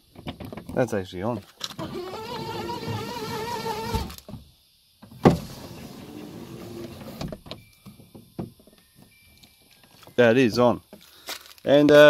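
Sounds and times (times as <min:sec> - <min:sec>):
window winder whine: 0:01.6 - 0:04.4, 0:05.2 - 0:07.6.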